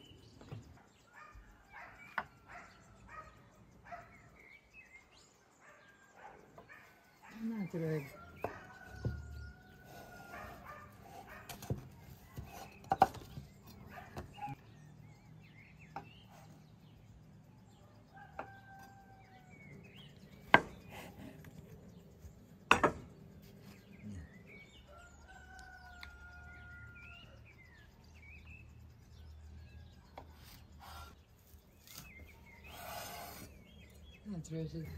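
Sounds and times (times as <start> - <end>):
rooster crowing: 24.9 - 27.4.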